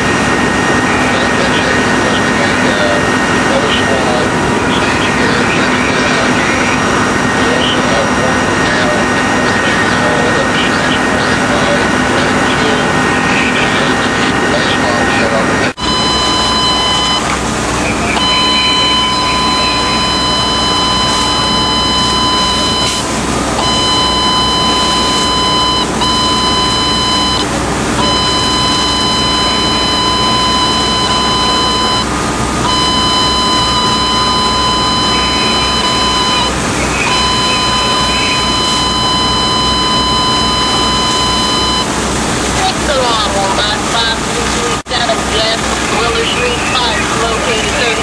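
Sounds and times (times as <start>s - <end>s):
electronic alarm tone blasts: 15.8s - 17.3s, 18.0s - 42.0s.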